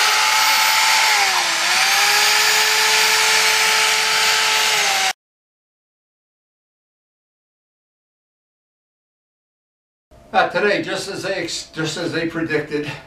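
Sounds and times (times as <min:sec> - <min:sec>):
electric sander whining: 0:00.0 - 0:05.2.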